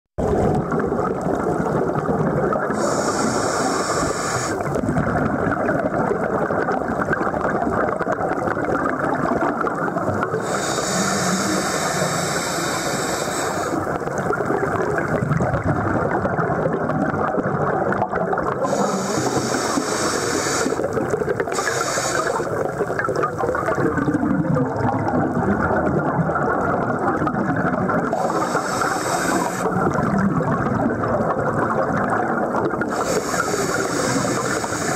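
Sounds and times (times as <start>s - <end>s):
muffled underwater rumble and bubbles: 0.2s - 34.9s
regulator breathing hiss: 2.7s - 4.7s, 10.4s - 13.9s, 18.7s - 22.6s, 28.1s - 29.7s, 32.9s - 34.9s.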